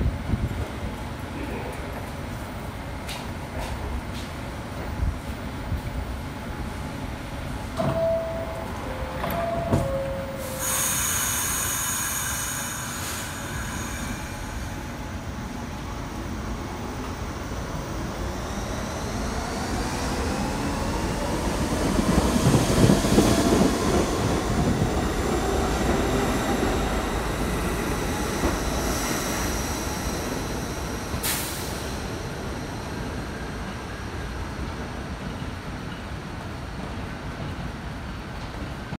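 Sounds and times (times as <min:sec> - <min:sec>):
rail noise: 0:00.0 - 0:38.9
train wheel squeal: 0:07.9 - 0:14.9.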